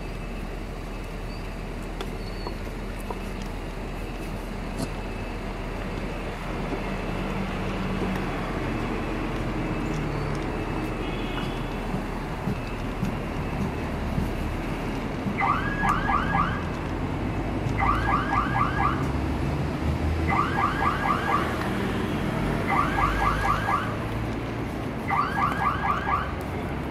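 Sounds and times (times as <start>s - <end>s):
alarm chirping: 15.4s - 16.6s, 22.7s - 24.0s.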